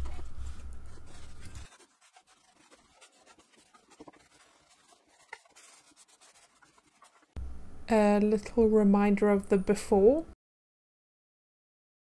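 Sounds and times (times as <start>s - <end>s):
cloth rubbing on wooden drawer: 0.0s - 7.4s
low hum: 7.4s - 9.7s.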